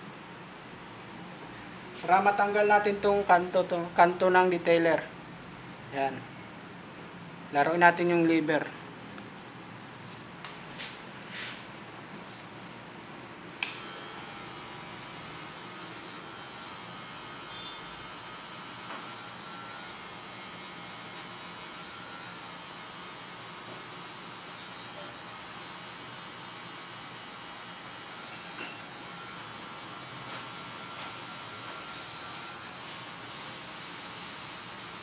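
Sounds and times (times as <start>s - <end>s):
hair clipper switch click: 13.6s - 14.0s
hair clipper buzzing: 13.6s - 35.0s.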